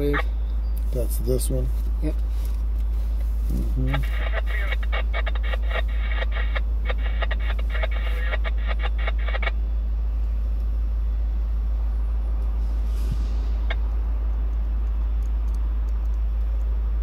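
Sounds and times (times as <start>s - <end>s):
tinny radio speaker: 0.0s - 0.3s, 3.5s - 9.6s
vehicle cabin rumble: 0.0s - 17.0s.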